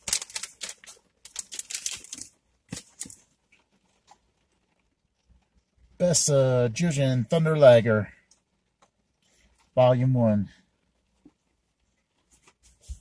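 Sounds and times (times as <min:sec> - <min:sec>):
packaging rustling and crinkling: 0:00.0 - 0:04.8.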